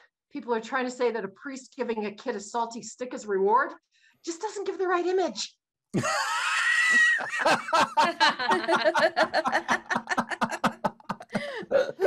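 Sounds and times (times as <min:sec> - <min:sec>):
high-pitched squeal of laughter: 0:06.0 - 0:07.6
rapid giggles: 0:07.7 - 0:11.6.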